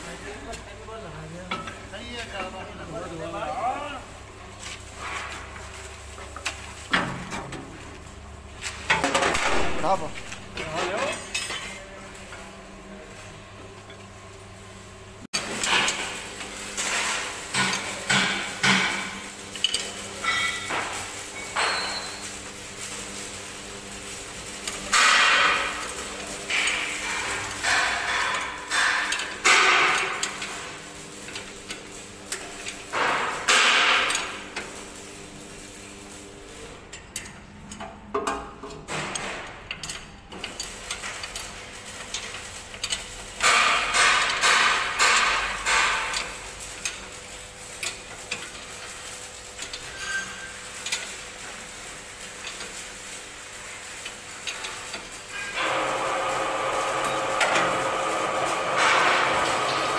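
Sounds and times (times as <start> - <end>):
spanner clinking on metal bolts: 16.8 - 20.8, 36.9 - 47.0.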